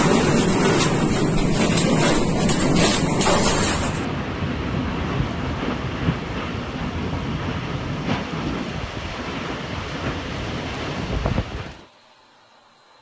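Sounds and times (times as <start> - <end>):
sharp knocks: 0.0 - 4.0
tornado wind and rain rushing: 0.0 - 12.2.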